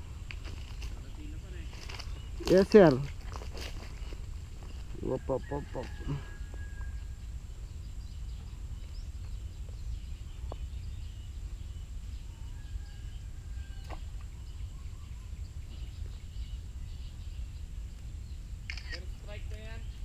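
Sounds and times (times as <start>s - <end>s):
steady low rumble: 0.0s - 20.0s
faint bird chirps: 4.6s - 20.0s.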